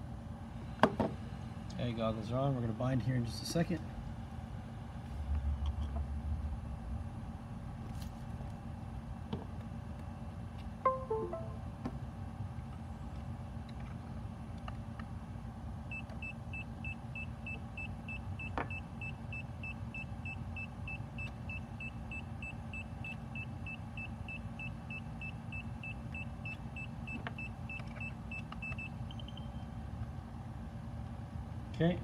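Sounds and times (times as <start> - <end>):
low steady hum: 0.0 - 17.5
short high beeps: 10.9 - 11.6.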